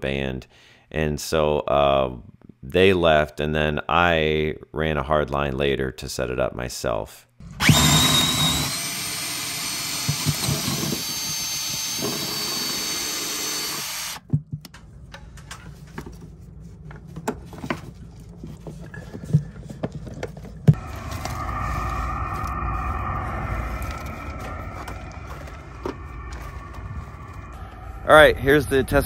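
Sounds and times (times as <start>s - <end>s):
cordless drill boring through wood: 7.5s - 14.3s
low steady rumble: 14.6s - 29.0s.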